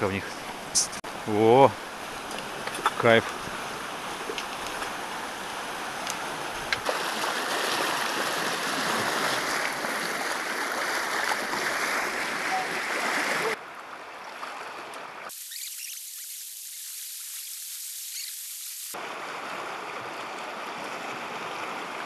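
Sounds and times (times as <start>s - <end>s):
river rushing over stones: 0.0s - 14.0s, 18.9s - 22.0s
people wading splashing: 6.8s - 13.6s.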